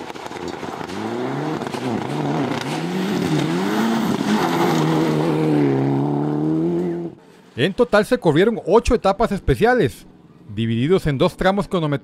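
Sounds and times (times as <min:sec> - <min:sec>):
rally car engine revving hard: 0:00.1 - 0:07.2.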